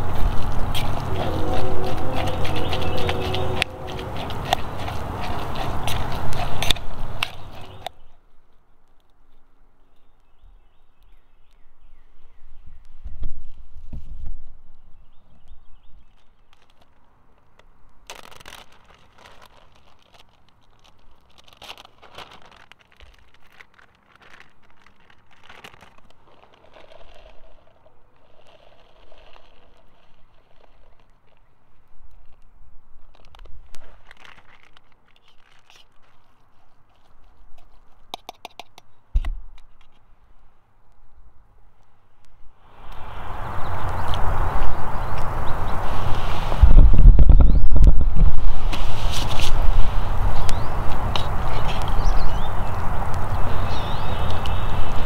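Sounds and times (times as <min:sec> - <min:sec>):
low rumble: 0:00.0 - 0:07.9
utensil scraping steel pot: 0:00.0 - 0:07.9
plastic bags crinkling: 0:16.1 - 0:31.3, 0:33.0 - 0:37.3.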